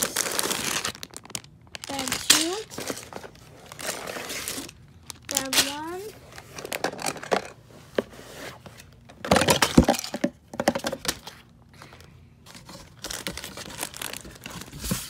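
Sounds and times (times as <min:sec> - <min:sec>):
plastic bags and cardboard crinkling: 0:00.0 - 0:15.0.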